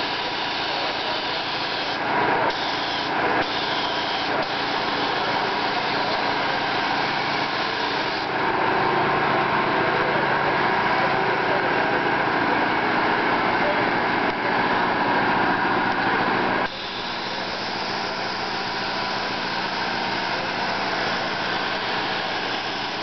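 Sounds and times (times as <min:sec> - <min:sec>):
paint spray gun hissing: 0:00.0 - 0:08.4, 0:16.6 - 0:23.0.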